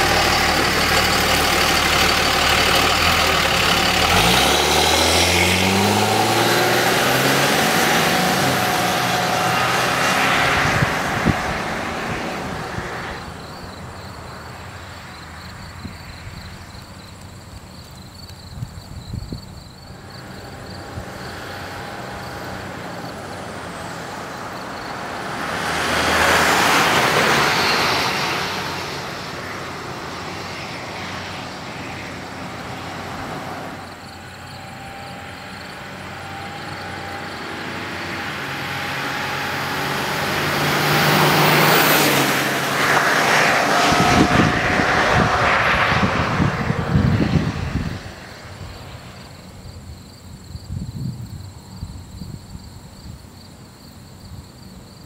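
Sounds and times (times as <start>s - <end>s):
diesel pickup driving past: 0.0s - 17.2s, 19.2s - 50.1s.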